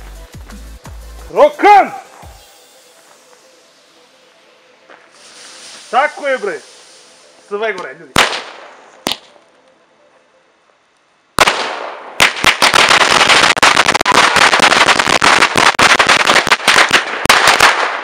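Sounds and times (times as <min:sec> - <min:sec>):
firecracker barrage: 0:01.3 - 0:03.6, 0:05.1 - 0:09.4, 0:11.4 - 0:18.0.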